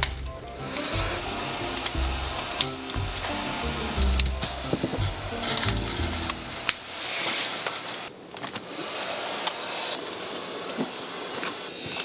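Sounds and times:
plastic parts being handled: 0.0 - 8.7
factory room noise: 0.0 - 12.0.

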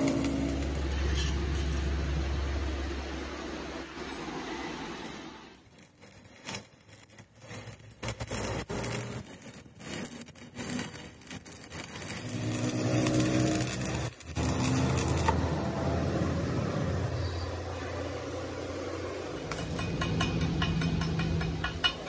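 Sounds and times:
welding arc crackling: 0.0 - 1.0, 4.8 - 16.2, 18.2 - 22.0.

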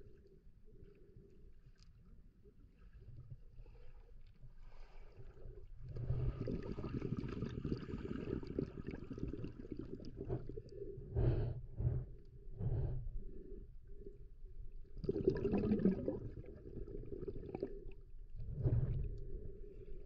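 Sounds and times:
muffled underwater water rushing: 4.6 - 14.1, 14.9 - 20.0.

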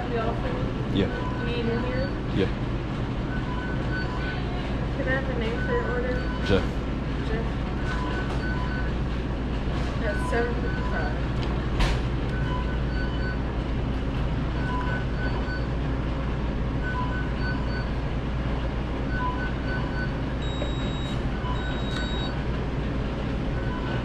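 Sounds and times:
kitchen equipment and ventilation hum: 0.0 - 24.0
short electronic beeps: 10.0 - 11.2, 19.1 - 22.4
longer high beeps: 19.1 - 22.4.

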